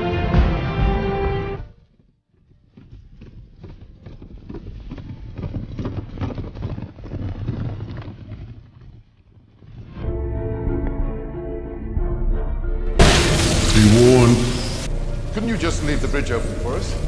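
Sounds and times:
horses galloping on a bridge: 0:01.8 - 0:10.0.

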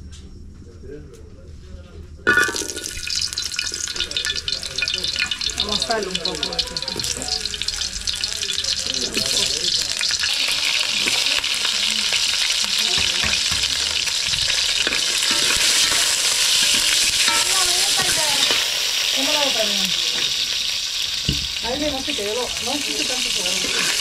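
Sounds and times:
garlic and onion sizzling in pan: 0:02.3 - 0:24.0.

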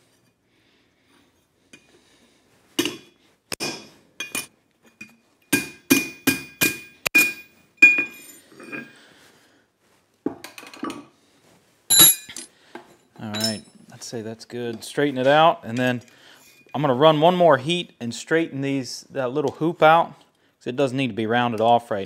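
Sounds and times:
hammer striking steel on anvil: 0:05.5 - 0:08.1.

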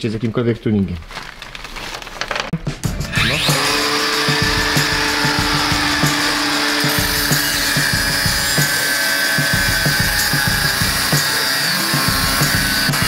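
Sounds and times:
angle grinder cutting metal: 0:03.0 - 0:13.0.

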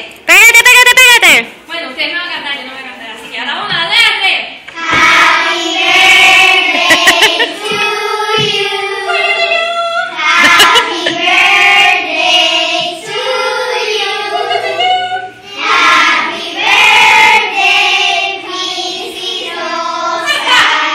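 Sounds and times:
girls singing together: 0:04.7 - 0:20.9.

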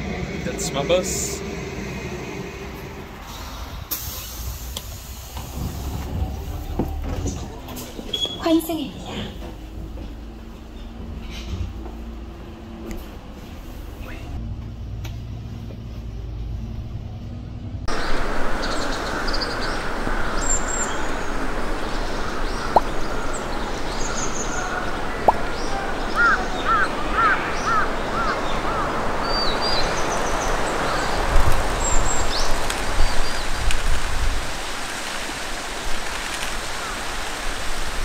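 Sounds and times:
bus engine humming: 0:00.0 - 0:37.0
mountain stream rushing: 0:17.9 - 0:38.0
bird harsh caws: 0:26.1 - 0:29.0.

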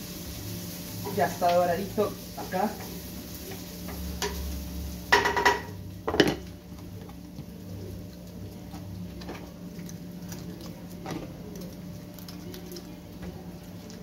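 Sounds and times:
kitchenware clattering: 0:05.1 - 0:06.5.

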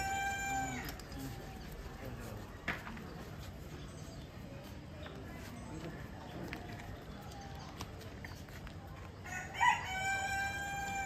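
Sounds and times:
rooster crowing: 0:00.0 - 0:00.9, 0:09.3 - 0:11.0.

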